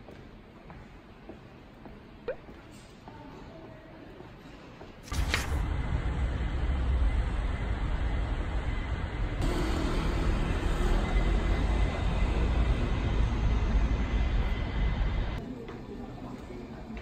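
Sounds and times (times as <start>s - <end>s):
low traffic rumble: 5.2s - 15.4s.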